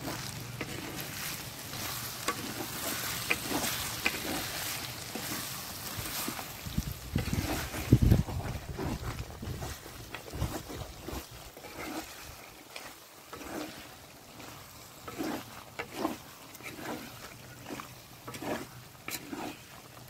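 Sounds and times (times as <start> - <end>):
wet squelching of meat mixed by hand: 0.0 - 20.0.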